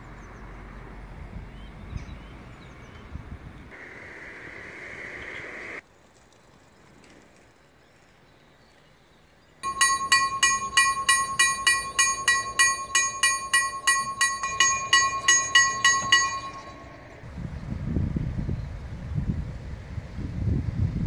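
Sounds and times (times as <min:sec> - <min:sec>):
level crossing bell ringing: 0:09.6 - 0:17.2
steady high tone: 0:09.6 - 0:17.2.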